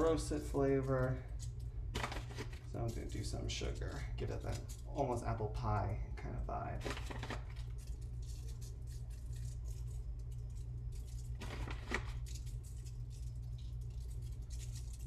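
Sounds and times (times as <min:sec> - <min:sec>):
steady low hum: 0:00.0 - 0:15.0
sugar grains pattering: 0:06.8 - 0:15.0.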